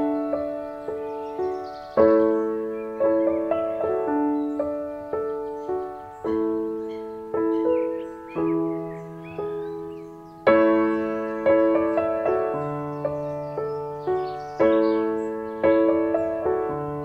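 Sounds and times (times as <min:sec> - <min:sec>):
slow gentle piano music: 0:00.0 - 0:17.0.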